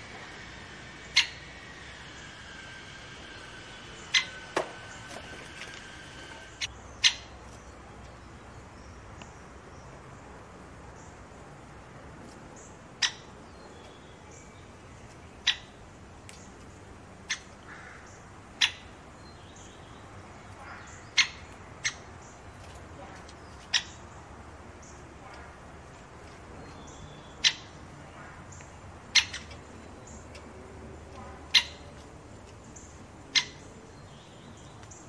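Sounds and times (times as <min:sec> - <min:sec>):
faint outdoor background hiss: 0:00.0 - 0:35.0
woodpecker sharp kik calls: 0:00.1 - 0:07.3, 0:13.0 - 0:13.3, 0:17.3 - 0:18.9, 0:20.5 - 0:22.4, 0:23.3 - 0:24.2, 0:26.7 - 0:27.8, 0:28.5 - 0:30.5, 0:31.2 - 0:32.1, 0:32.9 - 0:34.3.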